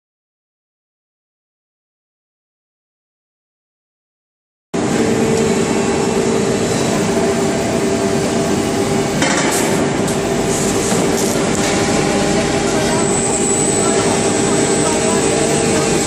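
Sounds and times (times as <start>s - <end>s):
constant machine hum: 4.8s - 16.0s
industrial machine running: 4.8s - 16.0s.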